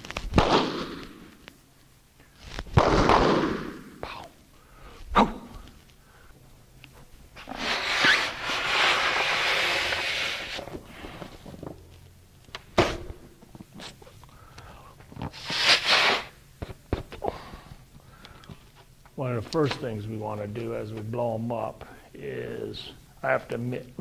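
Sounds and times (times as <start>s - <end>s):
rubber squeaks and clicks: 7.4s - 10.6s
man blowing into balloon: 7.4s - 11.3s, 15.3s - 16.4s.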